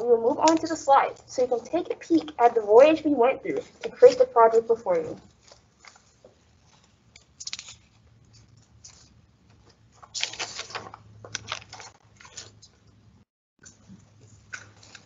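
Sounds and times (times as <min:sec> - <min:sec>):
rustling and clicking handling noises: 0:03.7 - 0:13.0, 0:13.6 - 0:15.0.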